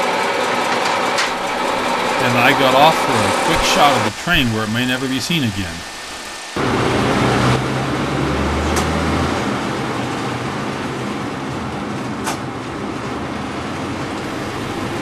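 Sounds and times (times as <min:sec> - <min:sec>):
railway motor coach engine hum: 0:00.0 - 0:15.0.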